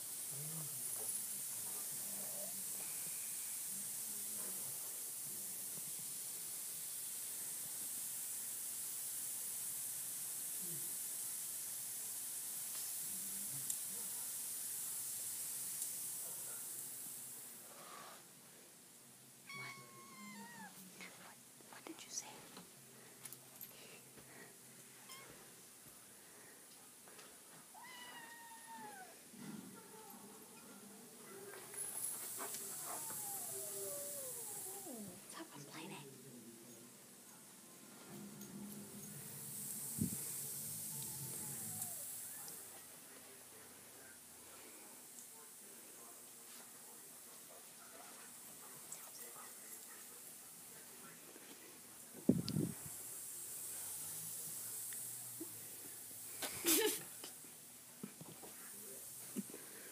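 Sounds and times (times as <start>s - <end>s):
high background hiss: 0.0s - 59.9s
faint soft sounds: 19.4s - 59.9s
cat chirp: 19.5s - 20.7s, 27.8s - 29.2s
cat meowing: 19.5s - 20.8s, 27.7s - 29.2s, 32.8s - 35.1s.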